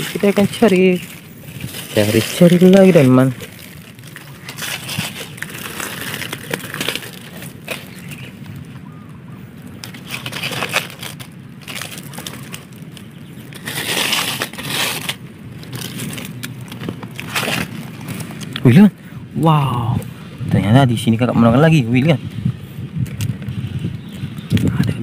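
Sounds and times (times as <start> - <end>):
dry leaves crunching: 0.0 - 18.8.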